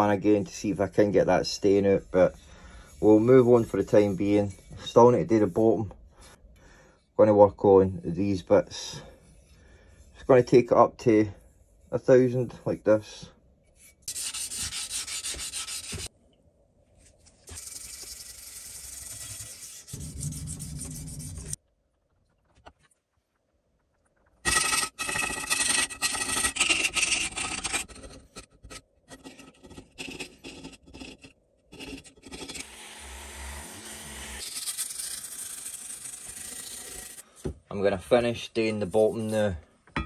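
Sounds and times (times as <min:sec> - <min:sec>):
sandpaper rubbing on metal: 0:13.8 - 0:16.1, 0:17.5 - 0:21.6, 0:33.8 - 0:37.2.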